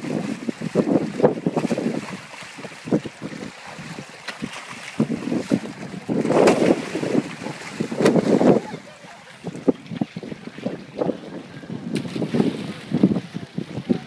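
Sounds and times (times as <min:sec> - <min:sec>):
fish splashing at water surface: 0:00.0 - 0:10.0.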